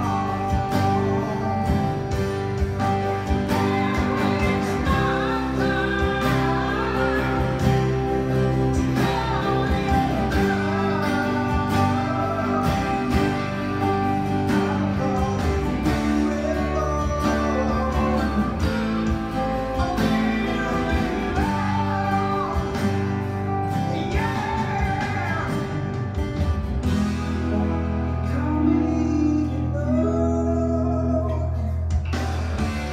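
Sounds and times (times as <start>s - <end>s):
recorded song with singing: 0.0s - 25.9s, 28.3s - 32.4s
electric guitar strumming chords: 0.0s - 32.9s.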